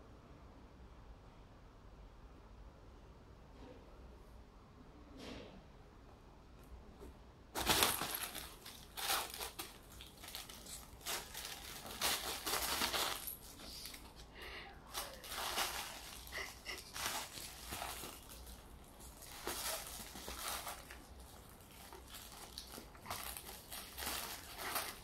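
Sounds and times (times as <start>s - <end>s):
fabric tunnel lining rustling: 7.6s - 14.2s, 14.9s - 25.0s.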